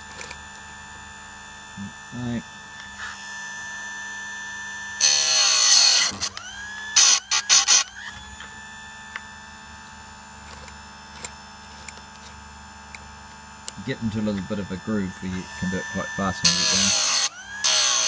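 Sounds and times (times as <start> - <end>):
grinder wheel humming: 0.0 - 18.0
grinder grinding chain tooth: 5.0 - 8.2, 15.1 - 18.0.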